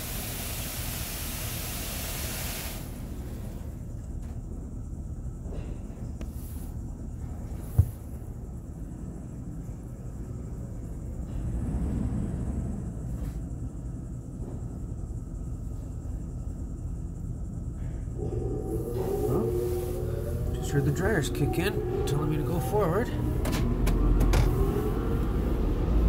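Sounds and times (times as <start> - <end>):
car wash water spray rumble: 0.0 - 4.1
dryer blowers whining: 18.1 - 26.0.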